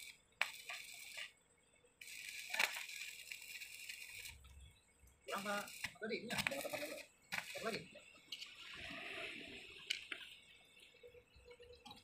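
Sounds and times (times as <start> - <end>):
electric arc welding crackling: 0.0 - 1.4, 2.0 - 4.6, 5.2 - 8.0.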